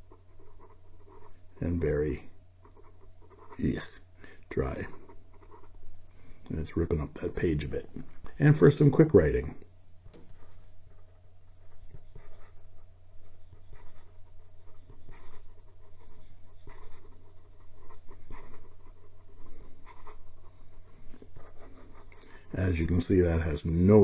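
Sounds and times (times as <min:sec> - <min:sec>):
pen nib scratching on paper: 0:10.4 - 0:22.2.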